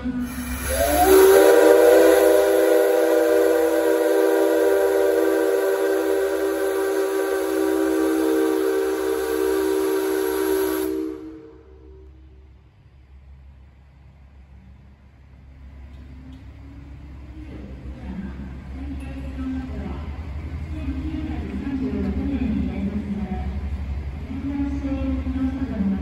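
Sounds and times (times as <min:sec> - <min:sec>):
locomotive whistle blast: 0:00.2 - 0:12.2.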